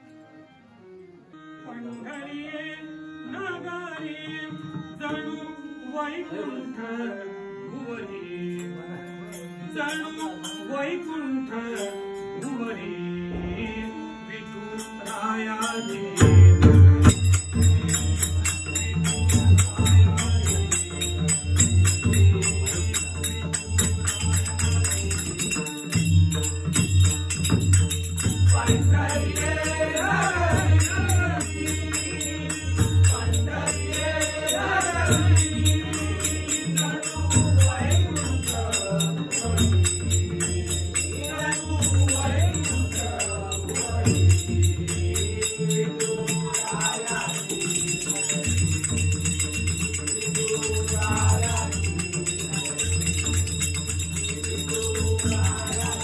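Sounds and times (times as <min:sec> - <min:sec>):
harmonium: 0:00.0 - 0:56.0
group devotional singing: 0:11.4 - 0:26.1, 0:26.7 - 0:56.0
barrel drum beat: 0:16.4 - 0:45.0
hand cymbals clinking: 0:17.0 - 0:56.0.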